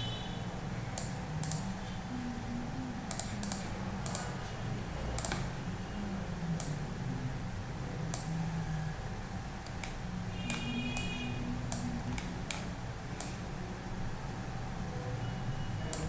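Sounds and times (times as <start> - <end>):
steady low hum: 0.0 - 16.0
keyboard and mouse clicks: 0.9 - 1.7, 3.0 - 4.3, 5.1 - 5.5, 9.6 - 11.1, 11.7 - 13.5.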